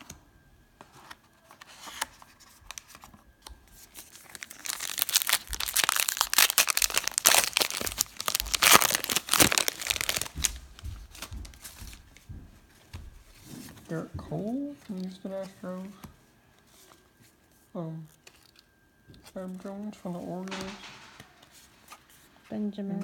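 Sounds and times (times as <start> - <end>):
wrapper tearing and crinkling: 3.8 - 10.8.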